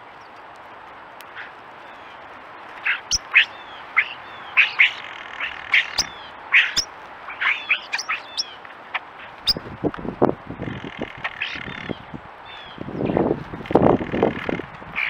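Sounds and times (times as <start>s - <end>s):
starlings calling: 1.3s - 8.6s, 9.3s - 9.7s, 10.6s - 13.2s.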